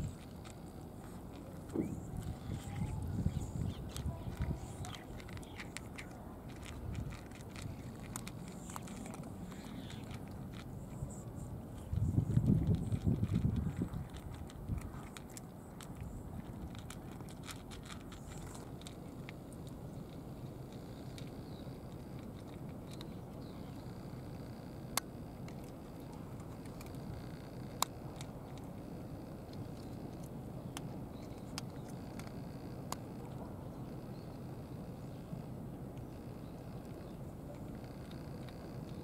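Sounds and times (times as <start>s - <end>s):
teeth clicking on pellets: 0.0s - 23.8s, 24.9s - 33.4s
cats chewing dry kibble: 0.0s - 39.0s.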